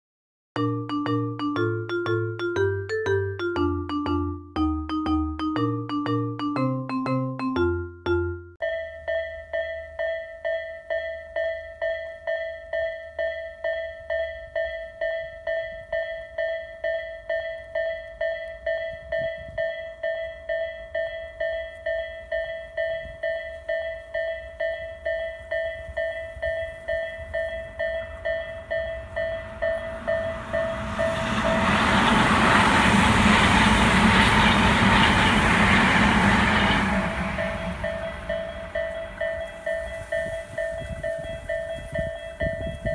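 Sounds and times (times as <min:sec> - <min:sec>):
level crossing bell chiming: 0:00.6 - 0:31.8, 0:37.2 - 0:42.9
train rushing past: 0:26.4 - 0:42.9.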